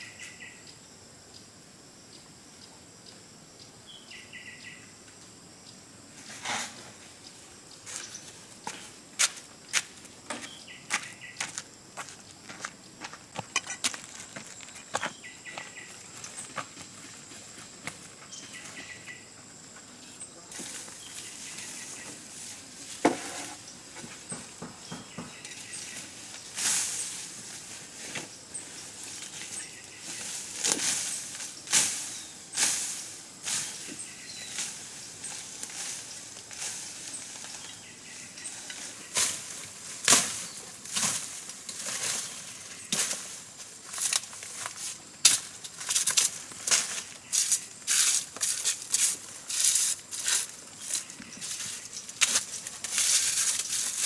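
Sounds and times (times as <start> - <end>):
undergrowth rustling and snapping: 25.3 - 33.0, 34.4 - 54.0.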